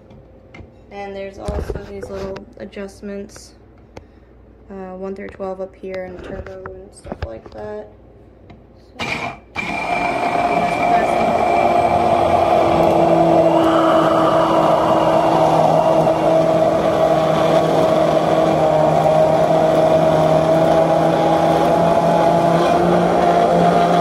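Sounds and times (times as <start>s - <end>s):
hand blender motor humming: 9.6s - 24.0s.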